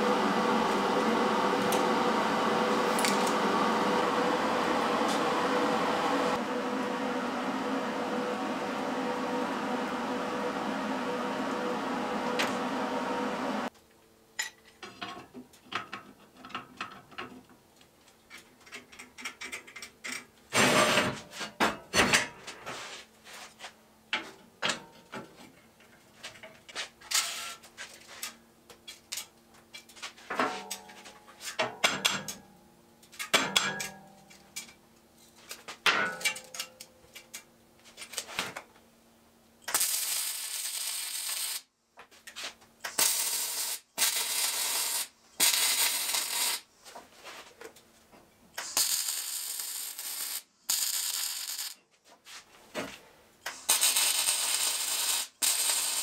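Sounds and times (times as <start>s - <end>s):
welder crackling: 0.0s - 5.4s, 39.7s - 41.7s, 42.8s - 46.7s, 48.6s - 51.8s, 53.4s - 56.0s.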